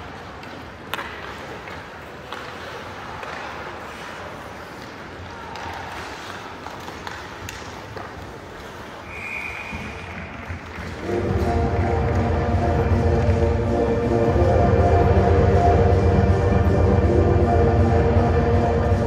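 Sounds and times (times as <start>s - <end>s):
hockey stick and puck clacks: 0.0s - 12.4s.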